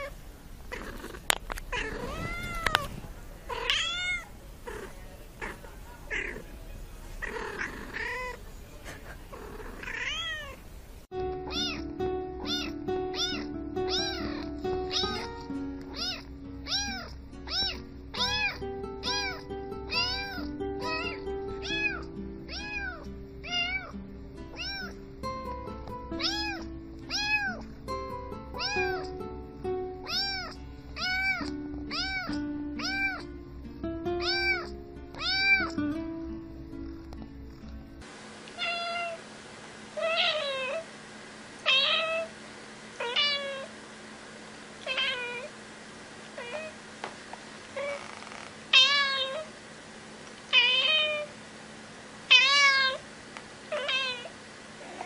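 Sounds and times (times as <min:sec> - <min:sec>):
kitten meowing: 0:01.7 - 0:02.9, 0:03.5 - 0:06.4, 0:09.8 - 0:10.6, 0:11.4 - 0:23.9, 0:24.5 - 0:25.0, 0:26.2 - 0:27.6, 0:28.5 - 0:29.2, 0:30.0 - 0:33.3, 0:34.2 - 0:35.8, 0:38.6 - 0:39.2, 0:40.0 - 0:40.8, 0:41.7 - 0:42.3, 0:44.8 - 0:45.5, 0:47.8 - 0:49.5, 0:53.7 - 0:54.3
background music: 0:11.1 - 0:38.0.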